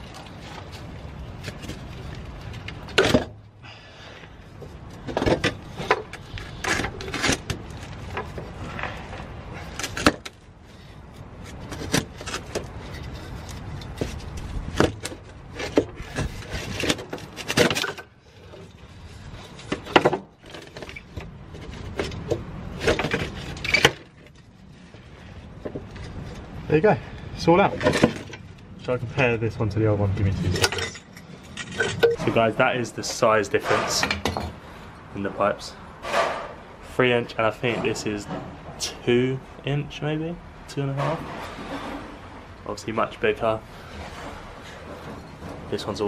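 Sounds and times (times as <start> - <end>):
metal pipe clunking and scraping: 4.6 - 26.5, 30.4 - 34.8, 36.0 - 36.7, 40.9 - 42.4, 43.8 - 45.8.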